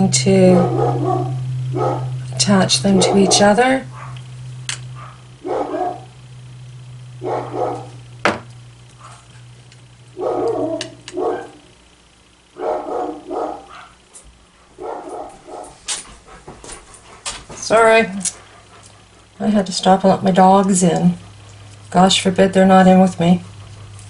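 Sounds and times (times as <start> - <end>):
steady low hum: 0.0 - 24.0
dogs barking: 0.2 - 6.3, 7.2 - 8.1, 8.9 - 9.4, 10.1 - 11.8, 12.5 - 19.4.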